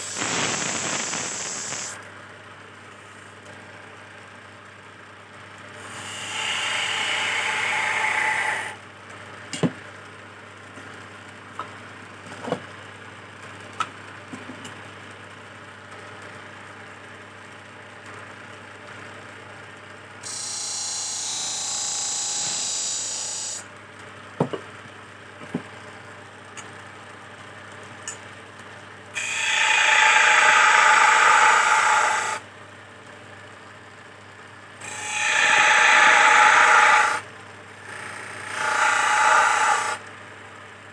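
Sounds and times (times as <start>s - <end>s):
wood pressed on spinning blank hiss: 0.0s - 2.0s, 29.2s - 32.4s
wood lathe humming: 6.0s - 8.8s, 29.2s - 32.4s, 34.8s - 37.2s, 38.3s - 40.0s
tool scraping spinning wood: 6.1s - 8.8s, 29.2s - 32.4s, 34.8s - 37.2s, 38.4s - 40.0s.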